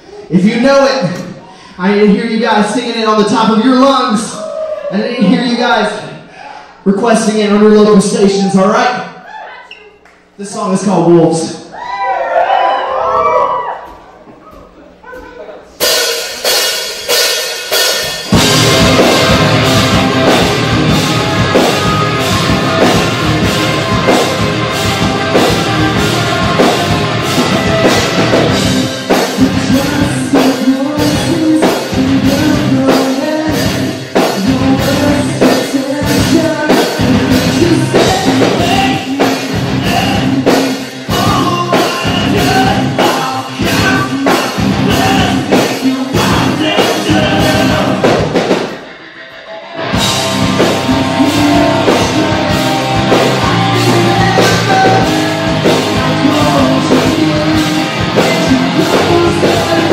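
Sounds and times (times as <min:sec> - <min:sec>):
drum kit beat: 0:13.8 - 0:49.0, 0:49.8 - 0:59.9
electric guitars and bass: 0:15.8 - 0:59.9
person singing: 0:21.0 - 0:48.2, 0:49.4 - 0:59.9.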